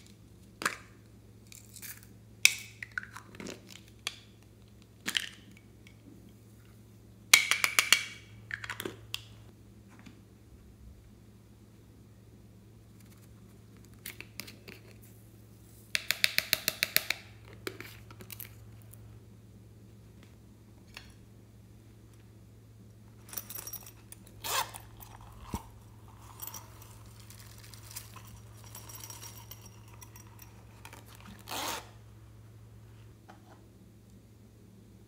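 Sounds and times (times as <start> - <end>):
zipper rasping: 24.4 - 27.1, 30.7 - 32.0.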